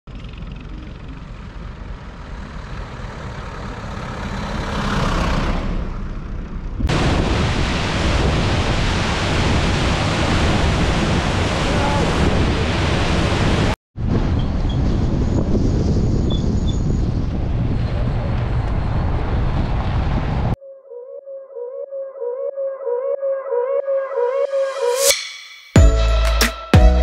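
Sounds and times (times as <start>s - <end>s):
outdoor noise: 0.1s - 9.4s, 14.0s - 20.6s
waterfall roaring: 6.9s - 13.8s.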